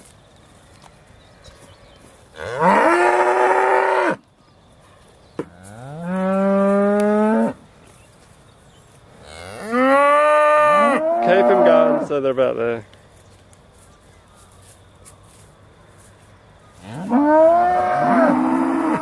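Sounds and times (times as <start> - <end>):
cows mooing: 2.4 - 4.2, 9.3 - 12.1, 16.9 - 19.0.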